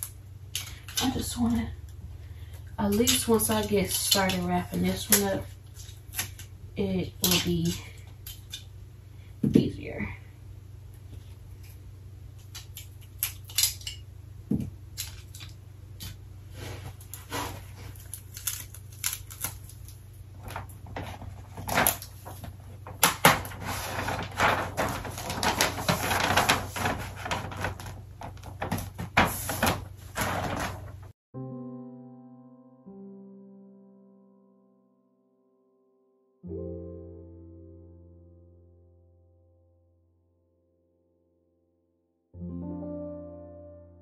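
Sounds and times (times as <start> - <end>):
wrapping paper rustling: 2.5 - 8.6, 14.9 - 31.1.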